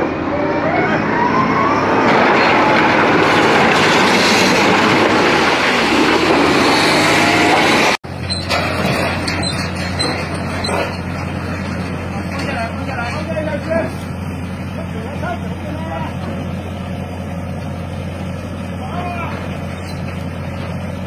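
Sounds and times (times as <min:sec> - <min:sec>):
diesel engine under heavy load: 0:00.0 - 0:21.0
excavator engine humming: 0:00.0 - 0:21.0
rock and metal grinding: 0:02.1 - 0:14.4.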